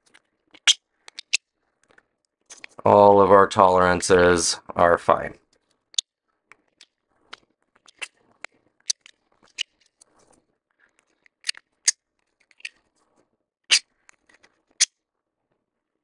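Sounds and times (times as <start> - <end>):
plastic pegs clicking: 0.0 - 1.4, 8.9 - 9.8.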